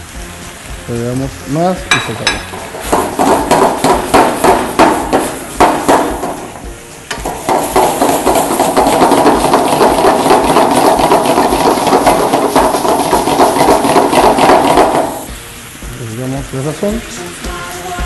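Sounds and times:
food sizzling in a wok: 0.0s - 18.0s
wooden spoon stirring: 7.3s - 15.1s.

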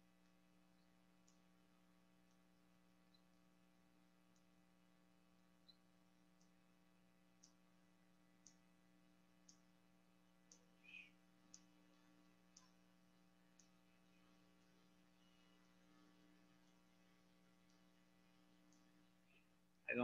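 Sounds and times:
faint ticks: 0.0s - 20.0s
steady low hum: 0.0s - 20.0s.

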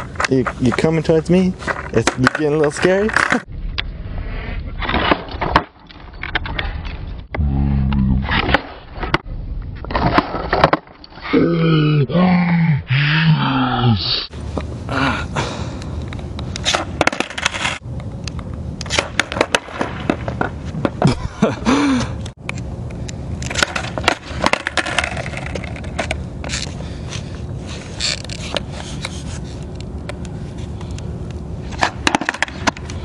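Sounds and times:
skateboard wheels rolling: 16.2s - 21.6s, 22.5s - 33.0s
skateboard clacking on pavement: 18.8s - 21.1s, 23.4s - 26.6s, 31.7s - 32.9s.

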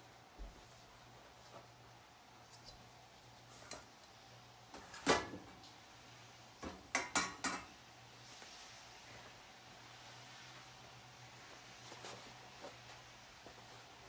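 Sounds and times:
utensils knocking on cookware: 6.6s - 7.8s.

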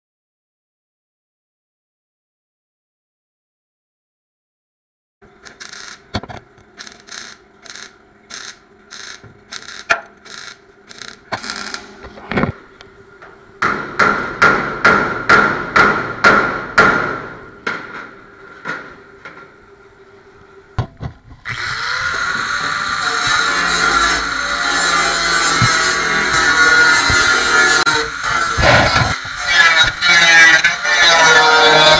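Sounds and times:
steady hum: 5.2s - 30.8s
welder arc bursts: 5.4s - 12.1s, 21.5s - 31.9s
angle grinder starting: 5.5s - 6.0s, 6.8s - 11.9s, 21.4s - 31.9s.

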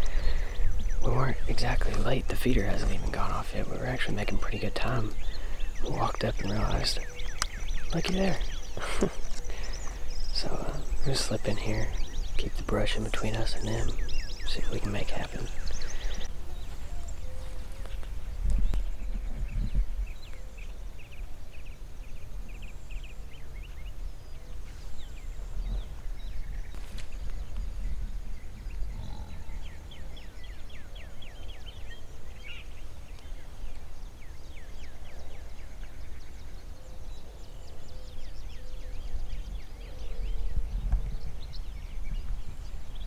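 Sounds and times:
small birds chirping and trilling: 0.0s - 43.0s
steady low rumble: 22.0s - 32.4s.

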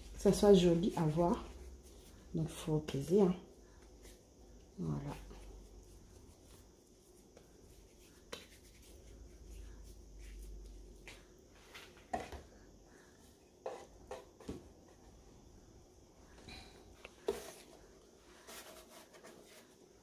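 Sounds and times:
hands rubbing dough: 0.0s - 11.8s, 17.2s - 20.0s.

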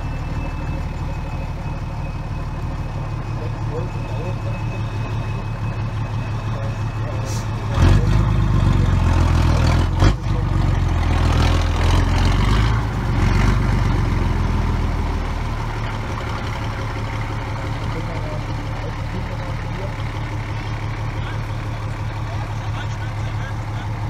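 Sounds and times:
diesel truck engine: 0.0s - 24.0s.

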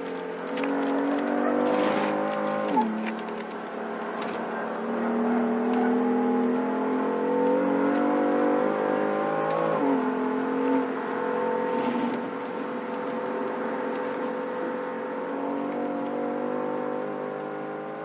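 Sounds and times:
car engine accelerating: 0.0s - 18.0s.

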